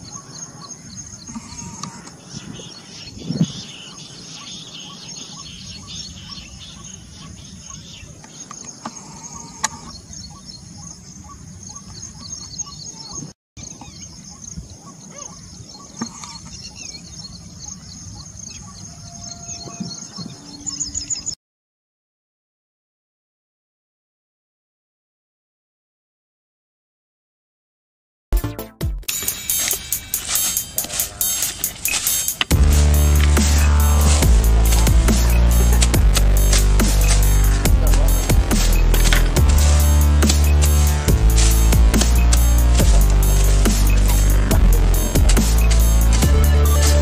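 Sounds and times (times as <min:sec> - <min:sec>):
birds chirping: 0:00.0 - 0:21.4, 0:29.1 - 0:47.0
pulsing high hum: 0:29.1 - 0:47.0
loud low thump: 0:32.5 - 0:46.6.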